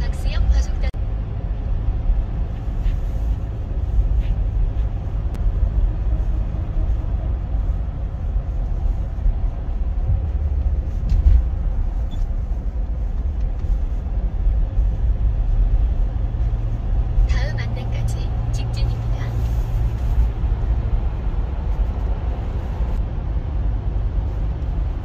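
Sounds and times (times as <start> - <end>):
car engine and tyre rumble: 0.0 - 25.0.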